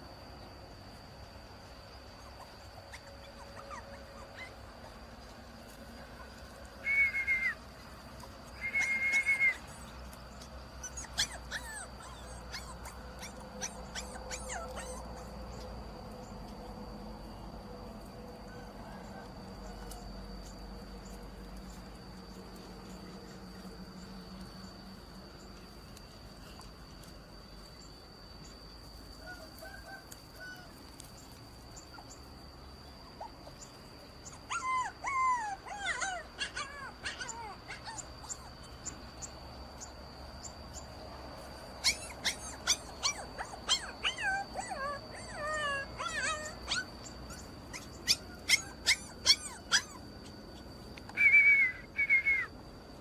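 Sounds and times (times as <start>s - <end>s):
puppy whimpering and yelping: 2.1s - 5.2s, 6.1s - 7.6s, 8.4s - 15.8s, 33.2s - 39.0s, 41.8s - 52.5s.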